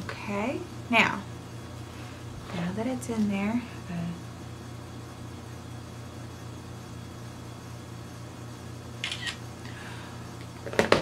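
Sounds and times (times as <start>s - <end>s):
low hum of room tone: 0.0s - 11.0s
phone camera shutter: 9.0s - 9.4s.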